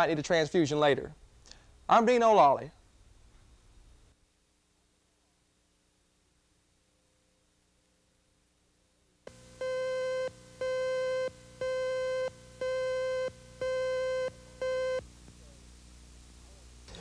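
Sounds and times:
faint tape hum: 0.0s - 17.0s
steady-pitch cue tone beeps: 9.3s - 15.0s.

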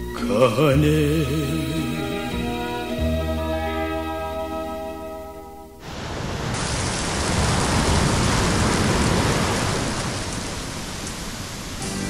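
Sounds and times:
surf washing over sand beach: 5.8s - 12.0s.

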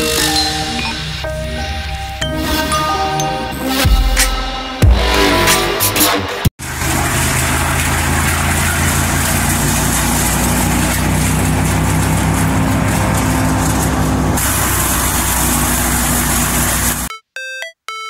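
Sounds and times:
brush chipper engine running: 6.6s - 17.1s.

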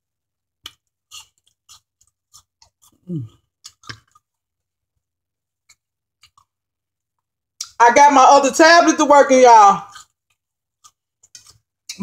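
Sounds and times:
person chewing crunchy food: 0.4s - 7.8s, 9.8s - 12.0s
person humming mm: 3.0s - 3.4s.

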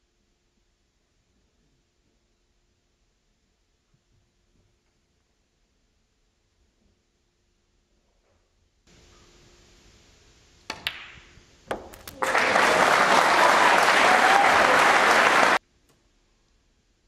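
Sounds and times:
snooker balls clicking: 10.7s - 12.2s
crowd applauding: 12.0s - 15.6s.

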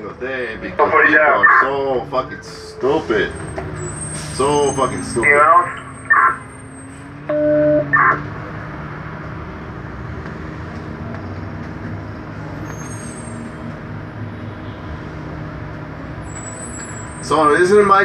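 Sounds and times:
bus engine running: 0.0s - 18.0s
road noise: 0.0s - 18.0s
short pitched tone: 7.3s - 8.2s.

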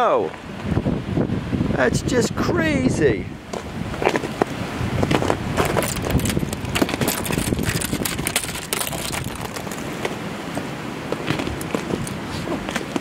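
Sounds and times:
wind rumbling on microphone: 0.3s - 13.0s
ice crackling and crunching: 5.1s - 10.2s.

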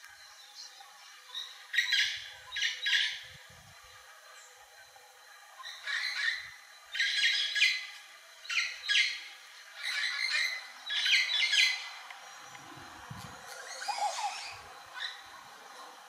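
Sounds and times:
woodpecker harsh calls: 13.6s - 15.2s.

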